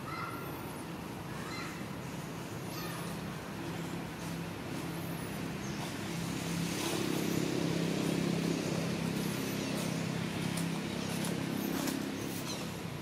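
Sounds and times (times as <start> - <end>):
low motor hum: 4.4 - 13.0.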